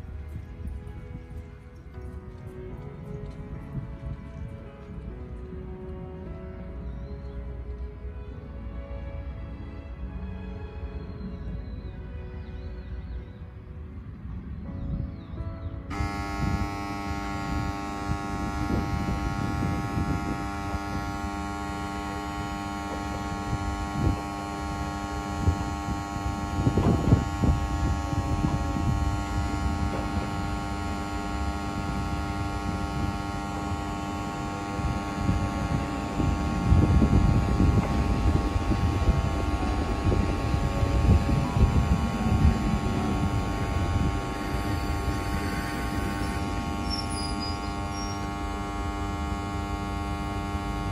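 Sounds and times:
diesel railcar idling: 0.0 - 13.4, 15.9 - 50.9
railcar arriving rumble: 0.0 - 50.9.

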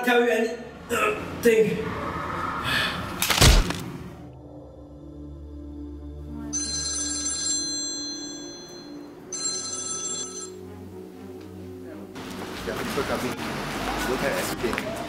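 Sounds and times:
low steady drone: 4.0 - 6.8
smartphone ringtone chime: 6.5 - 10.6.

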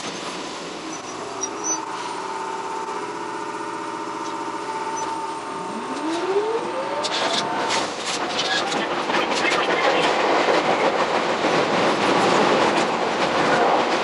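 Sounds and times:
electric train whining: 0.6 - 9.2.

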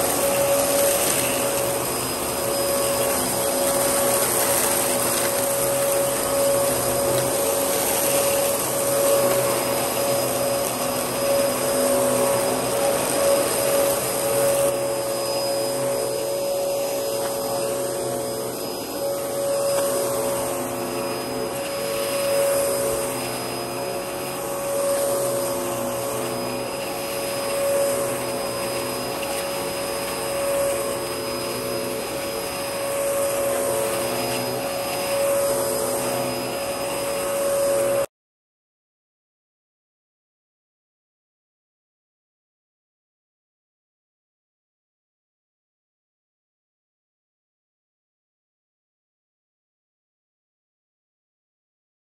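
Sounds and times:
vacuum cleaner motor whine: 0.0 - 38.1.

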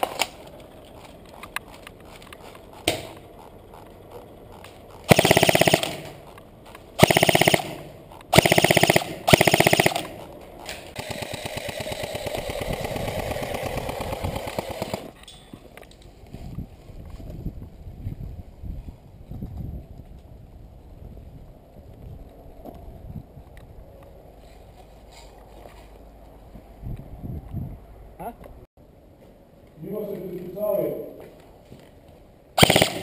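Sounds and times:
quieter steady rattle: 0.0 - 17.3
airsoft gun full-auto bursts: 5.1 - 6.3, 7.0 - 10.3, 10.9 - 15.2, 32.6 - 33.0
sharp crack: 5.1 - 6.4, 32.6 - 33.0.

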